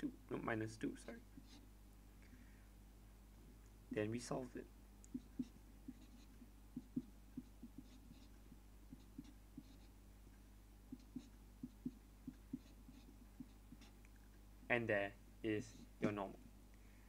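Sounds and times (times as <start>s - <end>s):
marker writing on paper: 1.0s - 1.7s, 5.1s - 10.0s, 10.9s - 14.0s.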